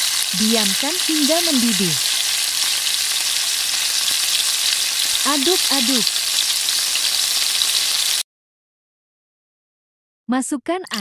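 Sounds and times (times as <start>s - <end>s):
paste sizzling in hot oil: 0.0s - 8.2s.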